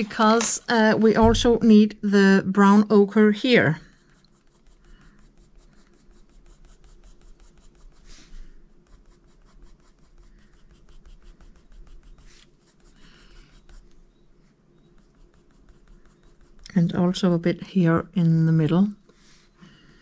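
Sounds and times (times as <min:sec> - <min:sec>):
coloured pencil scratching paper: 0:03.2 - 0:17.4.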